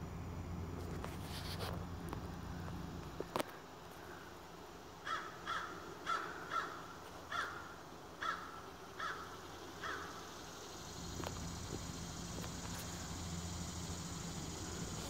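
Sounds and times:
bird calling: 5.0s - 15.0s.

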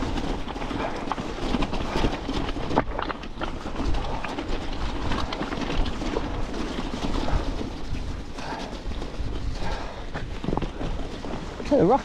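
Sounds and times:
bike rattling over rocks: 0.0s - 12.0s.

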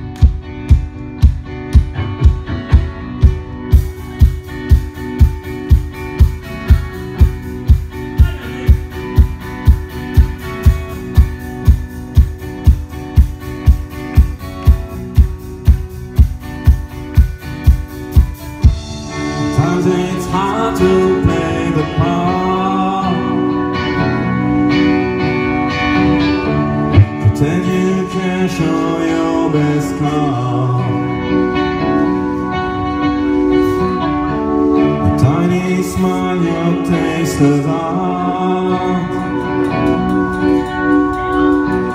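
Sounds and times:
steady drum beat: 0.0s - 20.6s, 26.9s - 27.6s
live rock band: 0.0s - 41.9s
male lead vocal: 8.1s - 9.1s, 19.2s - 24.5s, 27.0s - 31.8s, 34.8s - 40.7s.

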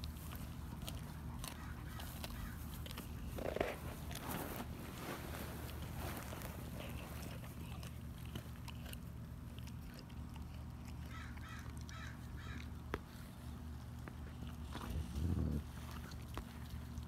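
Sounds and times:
dog chewing with crunching: 0.0s - 17.0s
steady low hum: 0.0s - 17.0s
crow cawing: 11.1s - 12.6s.

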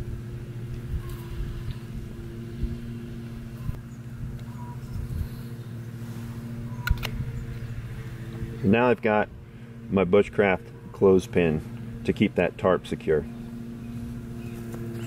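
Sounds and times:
low mechanical hum: 0.0s - 15.0s
sharp click: 6.8s - 7.2s.

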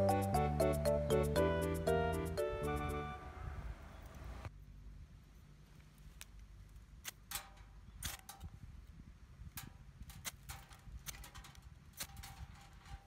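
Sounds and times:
metal striker scraping fire rod: 7.0s - 8.6s, 9.6s - 13.0s.

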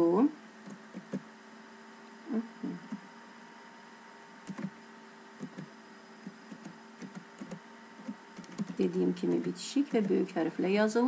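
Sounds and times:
low electrical hum: 0.0s - 11.0s
keyboard keys tapping: 0.6s - 1.2s, 4.4s - 4.8s, 5.4s - 8.9s.

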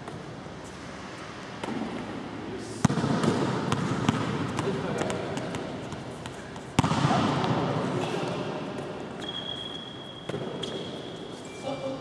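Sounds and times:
gym hall background: 0.0s - 12.0s
volleyball smacking: 2.8s - 9.5s.

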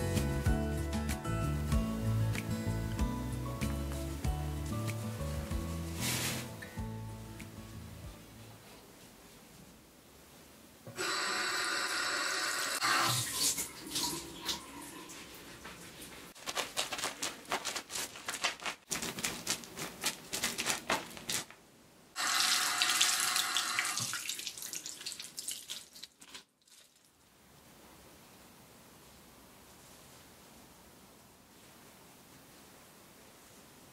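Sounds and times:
wet soap net squishing: 16.3s - 21.5s, 24.0s - 27.2s.

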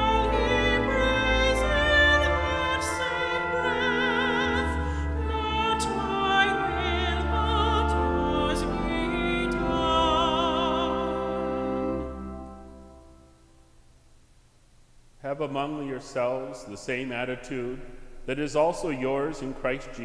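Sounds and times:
classical singing with vibrato: 0.0s - 13.0s
sustained low accompaniment: 0.0s - 13.7s.

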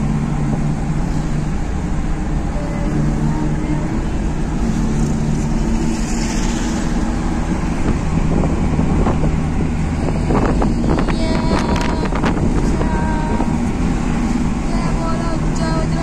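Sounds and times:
car engine running: 0.0s - 16.0s
wind and road noise: 0.0s - 16.0s.

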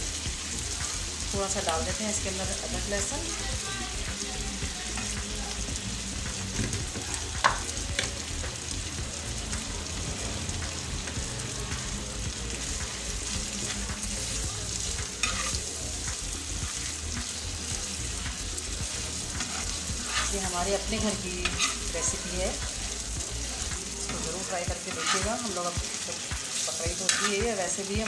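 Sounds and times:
meat sizzling in oil: 0.0s - 28.0s
spatula clacks: 12.7s - 28.0s
metal spatula scraping pan: 15.2s - 15.6s, 19.4s - 22.6s, 24.1s - 25.6s, 26.6s - 27.6s.

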